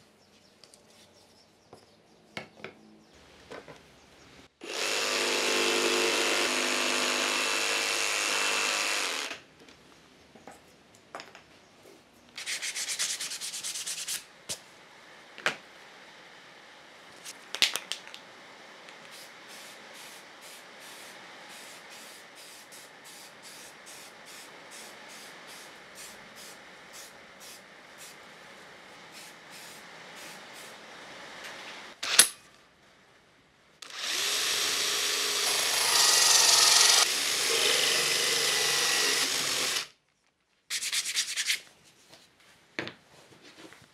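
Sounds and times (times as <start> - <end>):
jigsaw cutting plywood: 4.6 - 9.4, 33.8 - 39.9.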